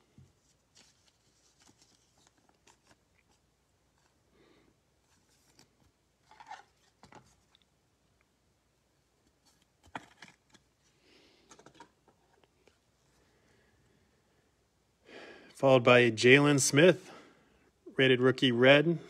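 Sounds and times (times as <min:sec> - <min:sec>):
card and plastic sleeve rustling: 0:00.0 - 0:04.3, 0:05.0 - 0:07.7, 0:09.2 - 0:13.2.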